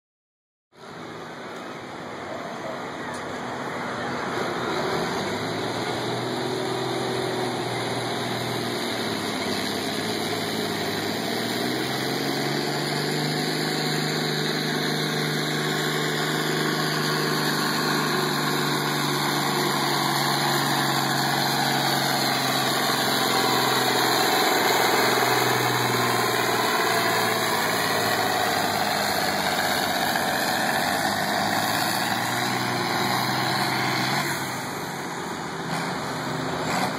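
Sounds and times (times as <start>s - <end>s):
tractor diesel engine under load: 0.8s - 36.9s.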